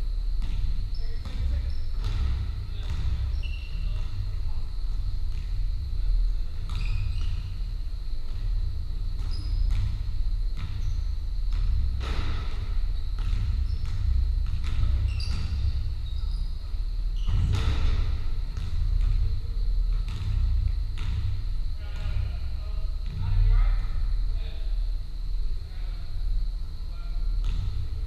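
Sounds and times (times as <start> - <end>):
basketballs bouncing: 0.2 - 24.2, 27.3 - 28.0
echoing thuds: 0.3 - 25.5, 27.2 - 28.0
trainers squeaking on wooden floor: 14.8 - 17.9.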